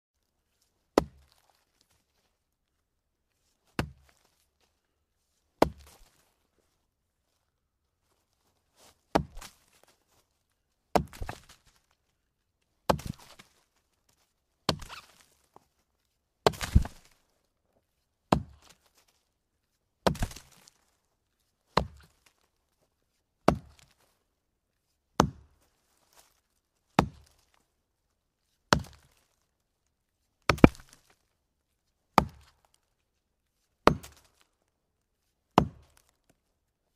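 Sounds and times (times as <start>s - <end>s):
axe chopping wooden log: 1.0s - 1.4s, 3.8s - 4.1s, 5.6s - 6.1s, 9.1s - 9.6s, 10.9s - 11.6s, 12.9s - 13.4s, 14.7s - 15.2s, 16.4s - 17.1s, 18.3s - 18.8s, 20.0s - 20.6s, 21.8s - 22.1s, 23.4s - 23.9s, 25.2s - 25.5s, 27.0s - 27.3s, 28.7s - 29.2s, 30.5s - 31.0s, 32.2s - 32.6s, 33.8s - 34.4s, 35.6s - 36.1s.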